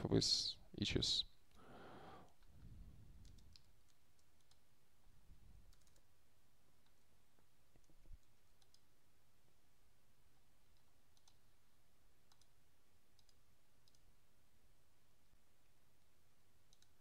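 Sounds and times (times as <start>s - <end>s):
keyboard keys clicking: 5.7s - 6.1s, 7.8s - 8.9s, 16.7s - 17.0s.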